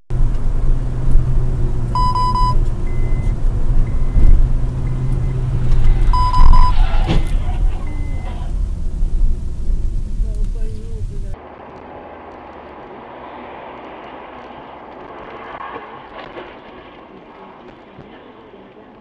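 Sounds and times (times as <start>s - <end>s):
car engine and road rumble: 0.0s - 19.0s
short high electronic beep: 2.0s - 3.3s, 4.9s - 8.4s.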